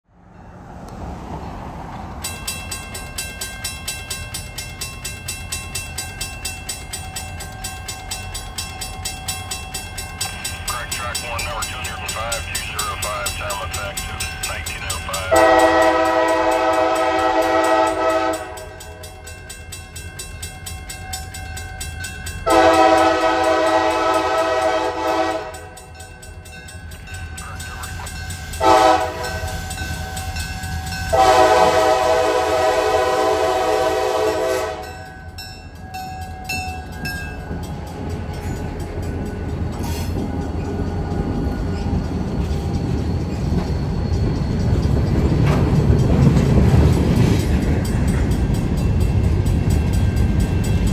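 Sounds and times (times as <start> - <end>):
train rumbling on rails: 0.0 - 50.9
locomotive horn blasts: 15.2 - 18.8, 22.5 - 25.8, 28.6 - 29.6, 31.1 - 35.1.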